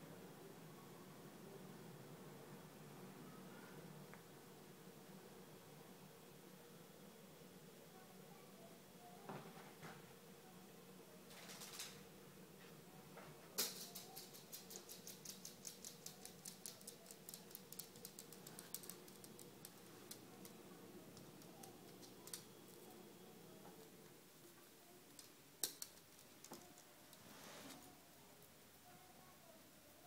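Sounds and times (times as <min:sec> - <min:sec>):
dog claws clicking on tile: 0:13.6 - 0:22.4, 0:25.2 - 0:26.9.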